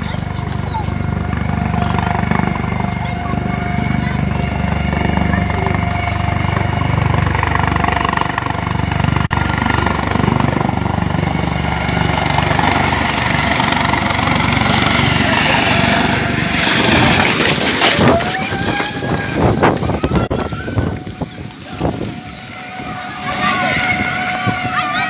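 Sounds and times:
helicopter rotor beat: 0:00.0 - 0:25.0
turbine whine: 0:00.0 - 0:25.0
wind rushing over microphone: 0:08.6 - 0:25.0
people shouting: 0:17.8 - 0:25.0.

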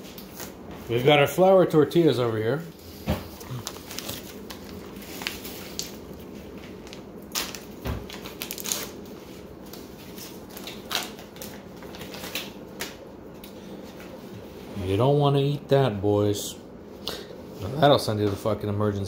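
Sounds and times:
steady low hum: 0:00.0 - 0:19.0
foil pouch crinkling and tearing: 0:03.5 - 0:12.6.

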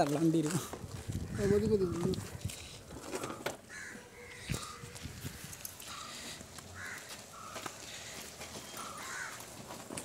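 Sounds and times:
crows cawing: 0:03.2 - 0:09.8.

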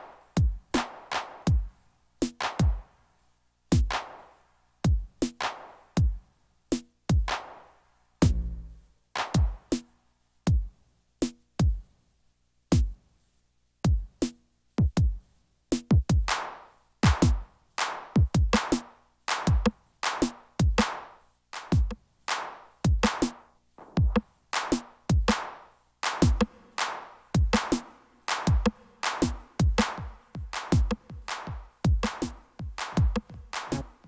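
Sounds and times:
electronic drum hits: 0:08.2 - 0:08.8
short pitched synth notes: 0:08.2 - 0:08.9.

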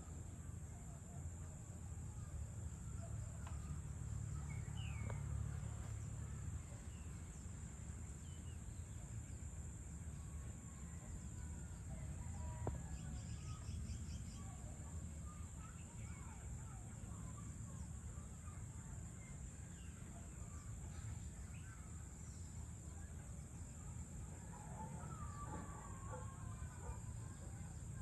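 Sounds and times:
low steady rumble: 0:00.0 - 0:28.0.

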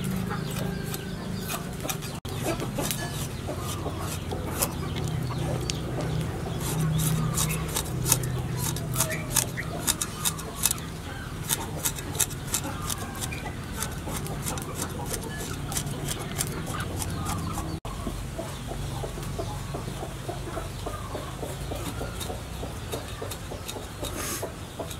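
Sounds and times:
chickens clucking: 0:00.0 - 0:24.9.

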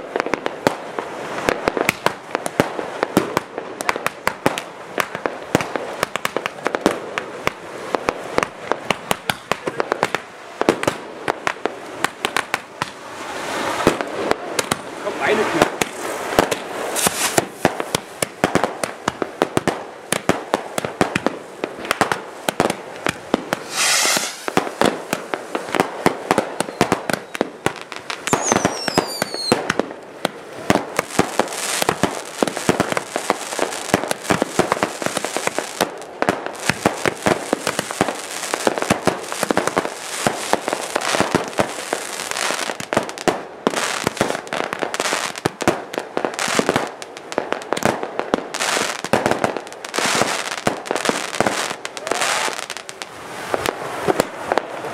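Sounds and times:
fireworks banging and crackling: 0:00.0 - 0:54.9
hissing whoosh: 0:23.5 - 0:24.8
falling firework whistle: 0:23.6 - 0:24.8, 0:26.6 - 0:27.4, 0:28.2 - 0:29.6.

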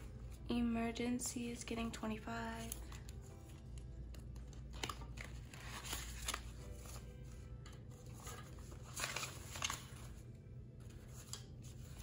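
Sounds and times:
banknotes rustling: 0:02.3 - 0:12.0.

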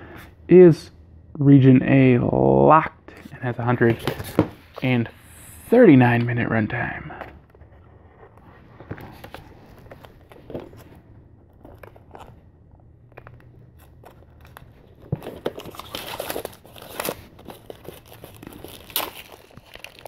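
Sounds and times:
plastic wrap crinkling: 0:13.1 - 0:20.0.

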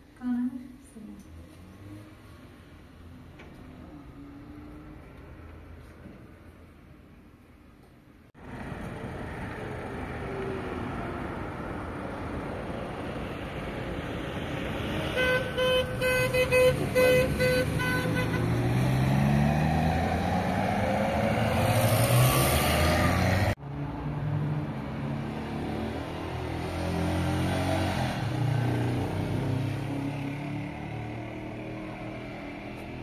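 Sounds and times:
vehicle engine passing by: 0:01.2 - 0:05.7, 0:16.2 - 0:33.0
vehicle engine humming: 0:08.4 - 0:26.6
vehicle horn beeping: 0:15.1 - 0:18.6.

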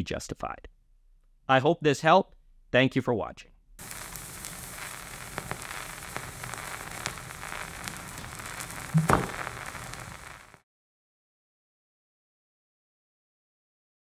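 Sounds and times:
vinyl record crackle and hiss: 0:03.8 - 0:10.6.

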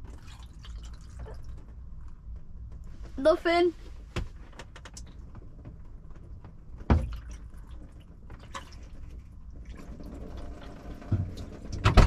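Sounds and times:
water pouring over car roof: 0:00.0 - 0:01.6, 0:06.9 - 0:12.0
water splashing and dripping: 0:00.0 - 0:01.7, 0:06.9 - 0:12.0.

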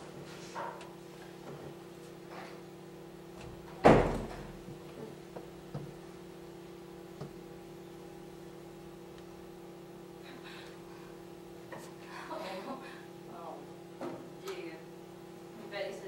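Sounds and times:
steady low hum: 0:00.0 - 0:16.0
door banging shut: 0:03.8 - 0:04.5.

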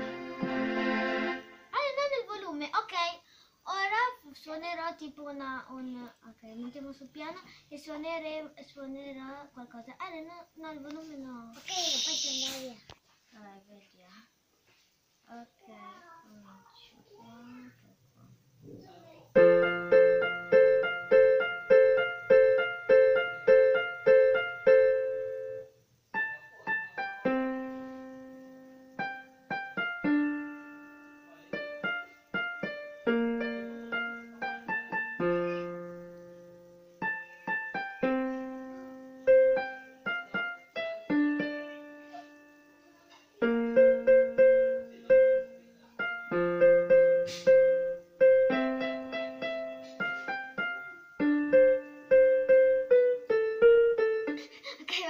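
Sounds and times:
electronic keyboard piano tune: 0:00.0 - 0:01.7, 0:19.4 - 0:42.7, 0:43.5 - 0:54.3.

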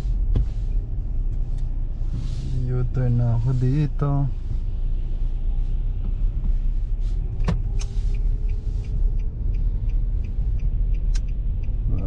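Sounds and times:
car engine and tyre rumble: 0:00.0 - 0:12.0
turn signal ticking: 0:00.0 - 0:12.0
sharp clicks: 0:07.4 - 0:11.8.

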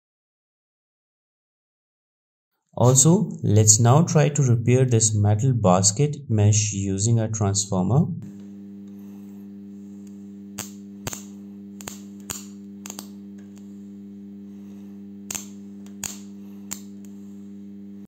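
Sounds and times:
spot welder humming: 0:08.2 - 0:18.0
sharp snaps of sparking: 0:09.9 - 0:13.9, 0:14.5 - 0:17.5.

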